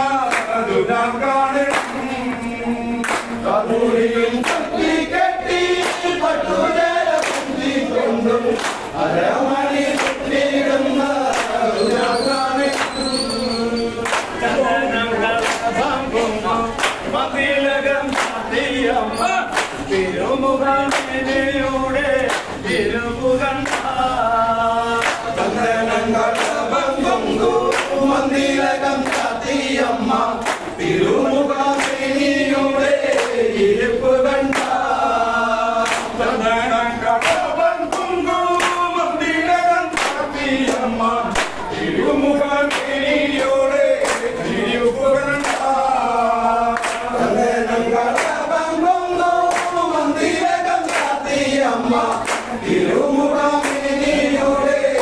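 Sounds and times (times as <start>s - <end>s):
group singing in chorus: 0.0s - 55.0s
lead voice singing: 0.0s - 55.0s
hand claps: 0.1s - 0.7s, 1.5s - 3.6s, 4.2s - 14.6s, 15.3s - 16.0s, 16.6s - 22.7s, 23.4s - 24.1s, 25.0s - 25.5s, 26.2s - 29.8s, 30.4s - 30.9s, 31.6s - 33.6s, 34.4s - 35.0s, 35.8s - 36.4s, 37.1s - 41.8s, 42.5s - 46.1s, 46.7s - 47.4s, 48.0s - 55.0s.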